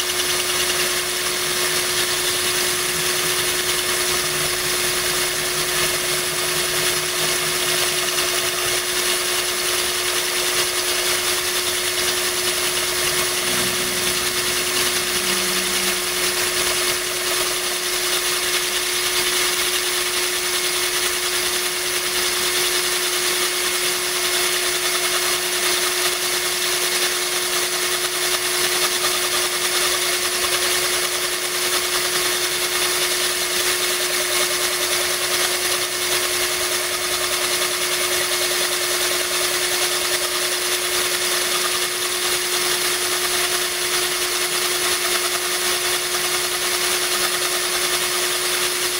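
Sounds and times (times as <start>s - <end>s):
drill bit grinding glass: 0.0s - 48.9s
power drill motor whine: 0.0s - 48.9s.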